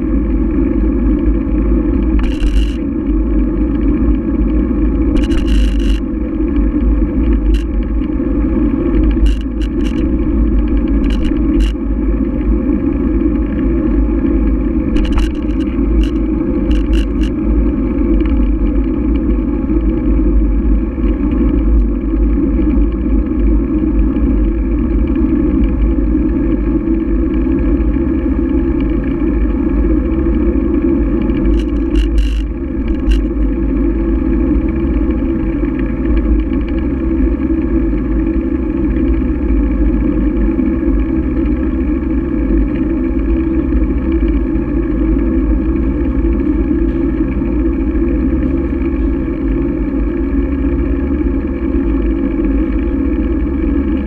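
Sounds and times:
wind rumble: 0:00.0 - 0:54.0
short rattling clicks: 0:02.1 - 0:02.8, 0:05.1 - 0:06.0, 0:09.1 - 0:11.8, 0:14.9 - 0:17.4, 0:31.4 - 0:33.3
bicycle tyres on asphalt: 0:02.1 - 0:02.9, 0:31.3 - 0:34.8.

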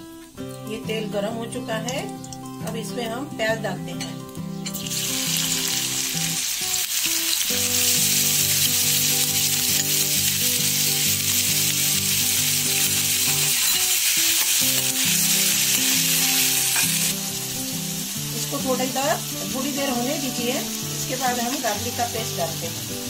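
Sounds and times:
onion sizzling in oil: 0:00.0 - 0:23.0
metal spatula stirring: 0:12.8 - 0:15.3.

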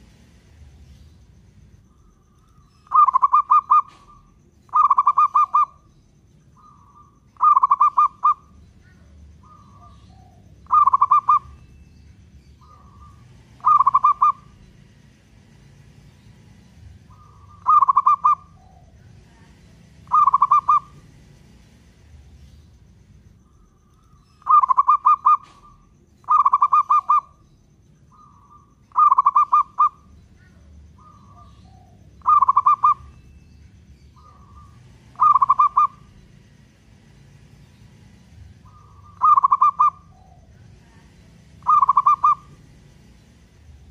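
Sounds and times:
dove cooing: 0:02.0 - 0:05.9, 0:06.6 - 0:11.8, 0:12.6 - 0:14.6, 0:17.0 - 0:21.1, 0:24.4 - 0:27.5, 0:28.1 - 0:33.3, 0:34.2 - 0:36.2, 0:38.6 - 0:42.7.

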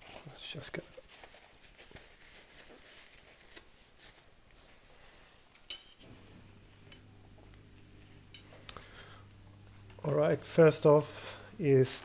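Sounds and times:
low steady hum: 0:05.7 - 0:12.0.

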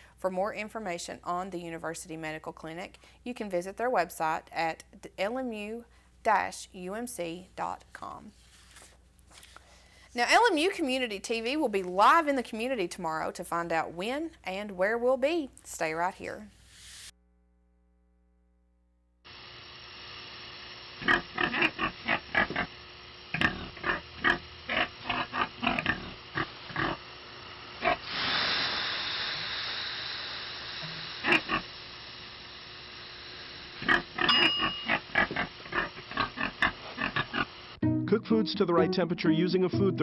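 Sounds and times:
steam hissing off sauna stones: 0:16.6 - 0:17.1, 0:19.3 - 0:37.8
pig grunting and oinking: 0:21.0 - 0:27.0, 0:27.8 - 0:28.0, 0:31.2 - 0:31.7, 0:33.8 - 0:37.6.

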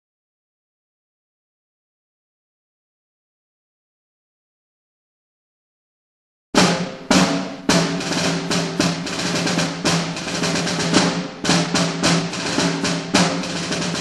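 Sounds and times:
drum-heavy music: 0:06.6 - 0:14.0.

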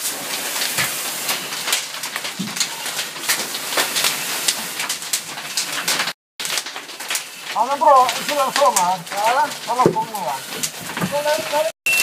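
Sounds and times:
fire rushing and crackling: 0:00.0 - 0:12.0.

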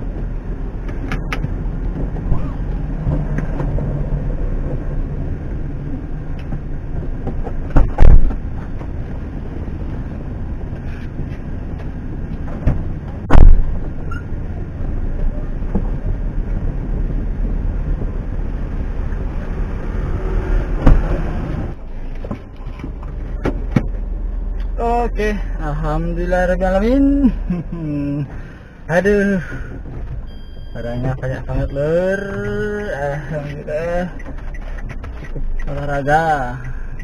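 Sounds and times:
car doors shutting: 0:20.7 - 0:24.0.

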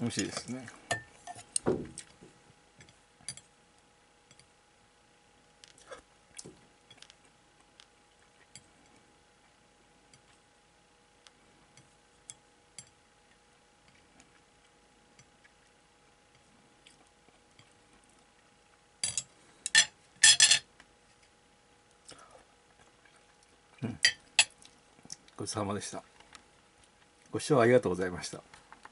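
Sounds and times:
cutlery clattering on plate: 0:19.0 - 0:20.7.

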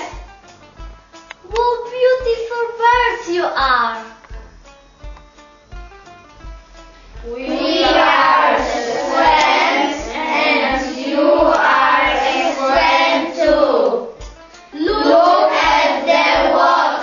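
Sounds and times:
children singing together: 0:07.2 - 0:17.0.

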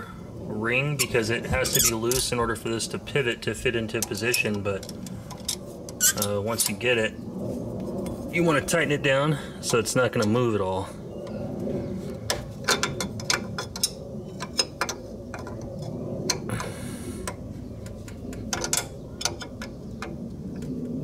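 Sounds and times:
steady low hum: 0:00.0 - 0:21.0
spanner wrench clicking on metal: 0:01.0 - 0:02.2.

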